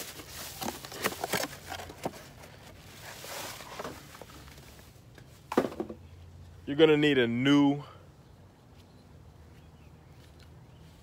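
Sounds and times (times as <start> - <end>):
packaging rustling: 0.0 - 4.7.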